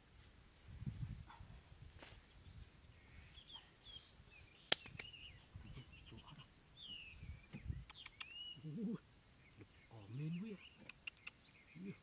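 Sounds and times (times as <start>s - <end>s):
soft bumps and scraping in dirt: 0.0s - 2.6s
birds chirping and twittering: 2.2s - 12.0s.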